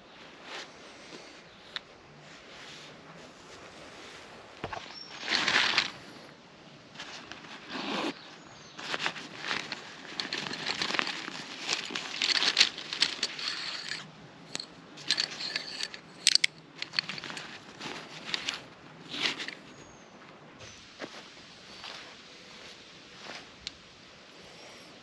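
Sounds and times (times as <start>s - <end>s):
fabric sack rustling: 3.4s - 6.2s, 6.9s - 19.8s
metal tent pegs clicking: 8.8s - 19.6s.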